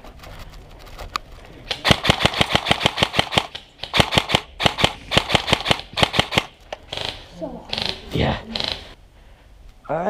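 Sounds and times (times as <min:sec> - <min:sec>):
airsoft gun automatic bursts: 0:01.7 - 0:08.0.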